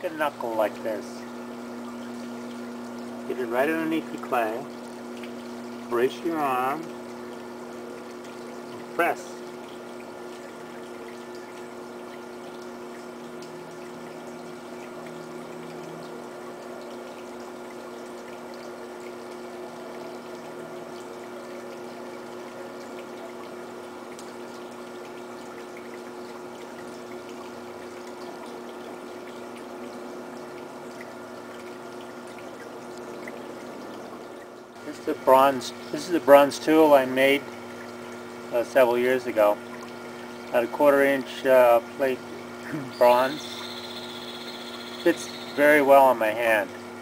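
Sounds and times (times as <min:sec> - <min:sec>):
potter's wheel humming: 0:00.0 - 0:47.0.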